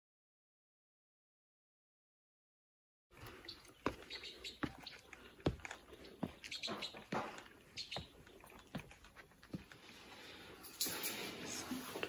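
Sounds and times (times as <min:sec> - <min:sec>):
footsteps on a paved path: 0:03.2 - 0:09.9.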